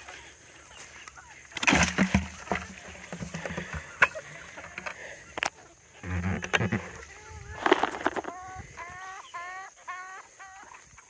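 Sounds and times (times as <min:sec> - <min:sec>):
wet mash splattering onto mulch: 0:01.6 - 0:03.6.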